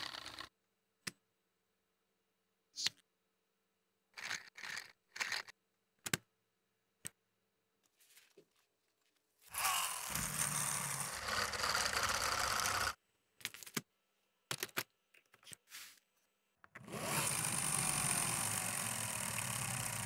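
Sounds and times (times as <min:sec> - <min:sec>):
flywheel toy whirring across floor: 0:00.0 - 0:00.5, 0:09.5 - 0:13.0, 0:16.9 - 0:20.0.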